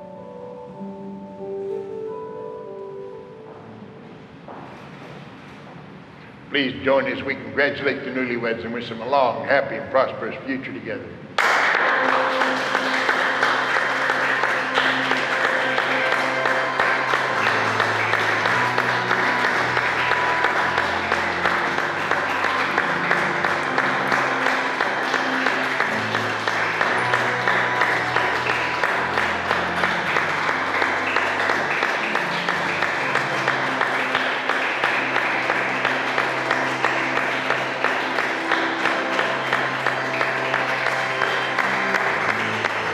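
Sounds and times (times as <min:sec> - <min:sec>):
crowd applauding: 0:11.4 - 0:42.9.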